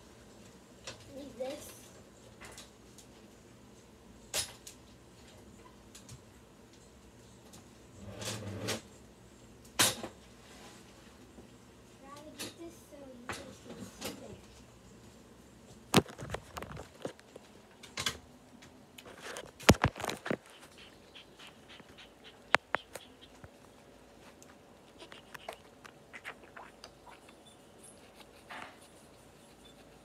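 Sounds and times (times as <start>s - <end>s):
sharp clicks and knocks: 21.8s - 23.6s.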